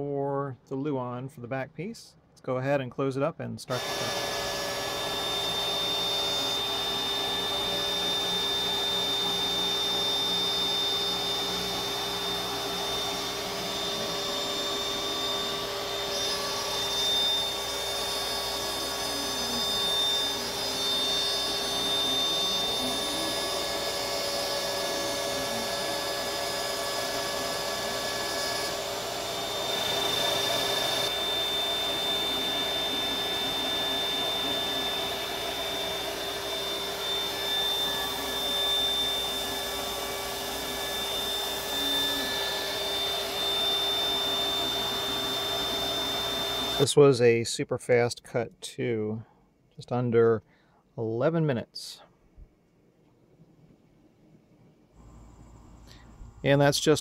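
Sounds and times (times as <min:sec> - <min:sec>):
dust vacuum running: 0:03.7 - 0:46.9, 0:55.0 - 0:57.0
router spindle whining: 0:03.7 - 0:46.9.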